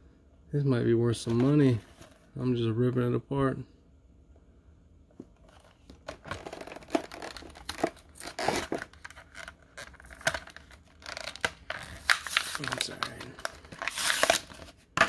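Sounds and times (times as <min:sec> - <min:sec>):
plastic crinkling: 0:06.1 - 0:14.8
card ripping: 0:06.3 - 0:15.0.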